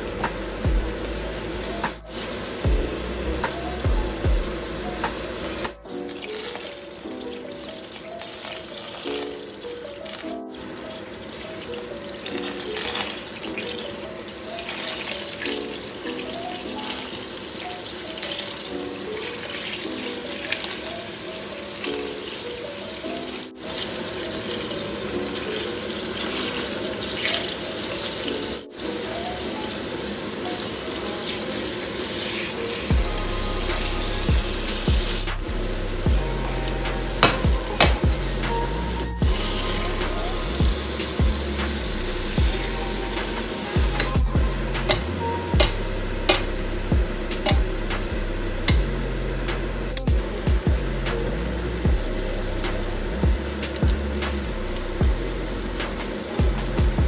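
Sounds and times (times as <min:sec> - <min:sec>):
bass line: 0:00.0 - 0:05.9, 0:32.9 - 0:57.0
background music with light melody: 0:00.0 - 0:57.0
butter sizzling in a frying pan: 0:04.0 - 0:38.4.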